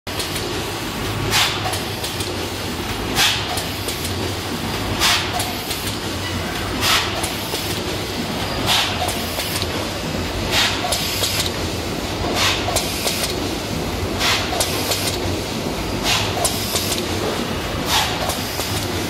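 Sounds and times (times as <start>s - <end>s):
packaging machine hum and rattle: 0.1s - 19.0s
short pneumatic hiss: 6.8s - 7.4s, 12.4s - 13.2s, 14.2s - 15.1s, 16.0s - 17.0s, 17.9s - 18.7s.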